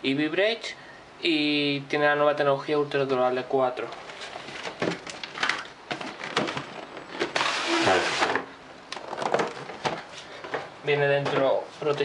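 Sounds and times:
cardboard lid sliding off: 7.2 - 8.5.

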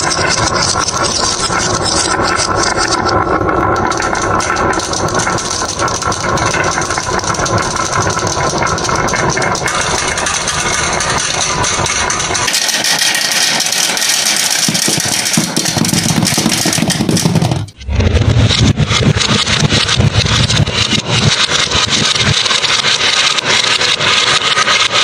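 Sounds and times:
marbles clicking together: 0.0 - 17.8
marbles rattling down wooden track: 0.0 - 17.8, 18.4 - 25.0
low rumble: 0.0 - 24.1.

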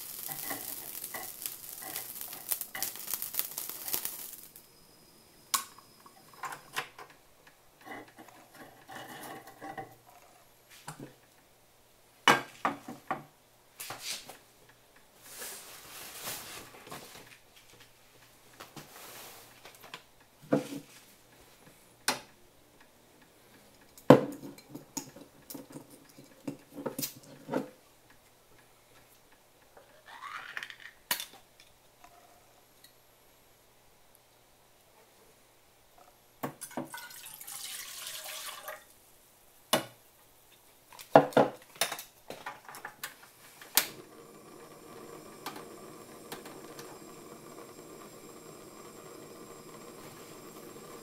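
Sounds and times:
hissing noise: 0.0 - 6.9, 43.4 - 51.0
metal cookware clanking: 0.1 - 3.1.

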